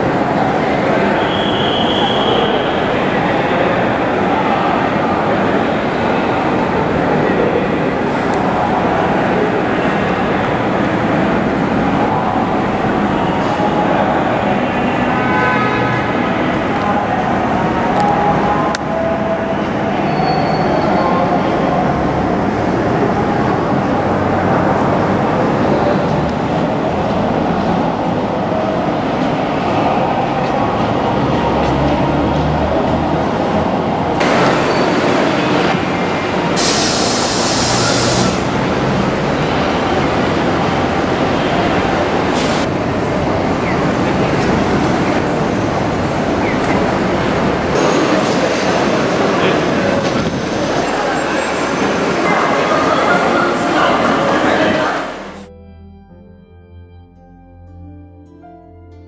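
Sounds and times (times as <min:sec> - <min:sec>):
heavy traffic rumble: 0:00.0 - 0:55.6
faint high squeal: 0:20.0 - 0:21.4.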